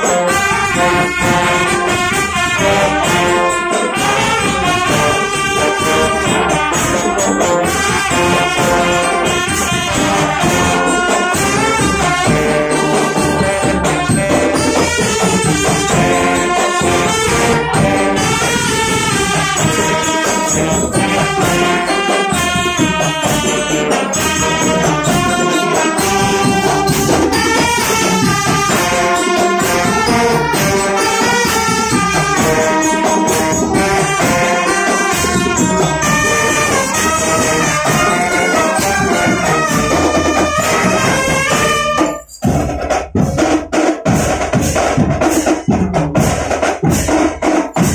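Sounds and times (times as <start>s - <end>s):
marching brass playing: 0.0s - 47.9s
marching drums: 0.0s - 47.9s.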